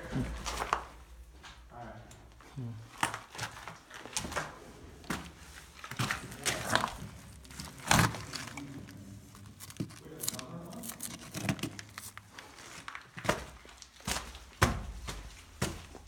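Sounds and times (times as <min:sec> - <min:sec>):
footsteps crunching on loose rock: 0:09.4 - 0:16.0.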